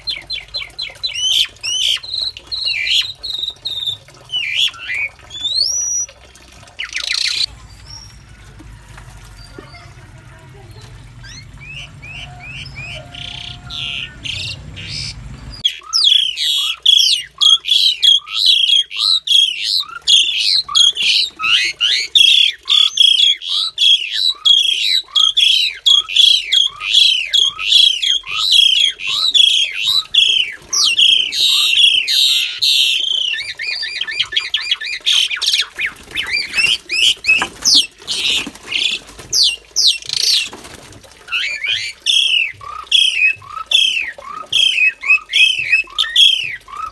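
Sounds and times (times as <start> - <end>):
starlings squawking: 11.2 - 40.5.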